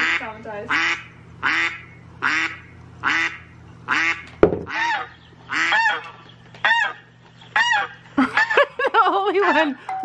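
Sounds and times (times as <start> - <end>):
recorded geese honking: 0.0 - 8.7, 9.3 - 9.9
sharp knock: 4.4 - 4.7.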